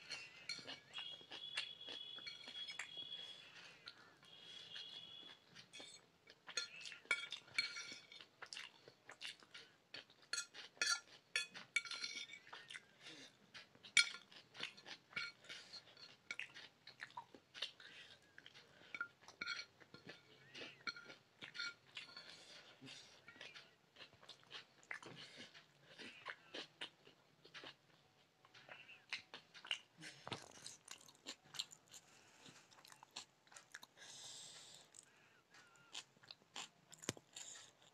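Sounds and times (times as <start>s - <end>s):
chewing: 0.0s - 37.9s
fork clinking on ceramic plate: 6.5s - 8.2s, 10.3s - 12.5s, 14.0s - 14.2s, 18.9s - 22.3s.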